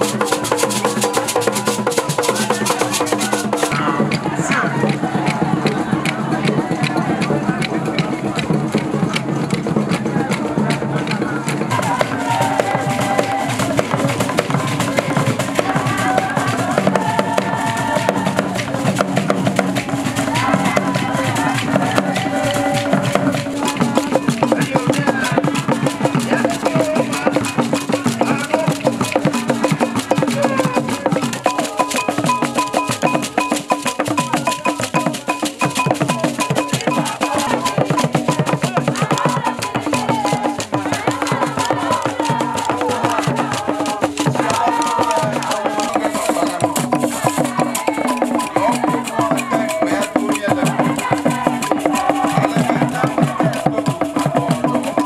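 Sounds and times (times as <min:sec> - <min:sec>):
barrel drums in fast rhythms: 0:00.0 - 0:55.0
group singing: 0:00.0 - 0:55.0.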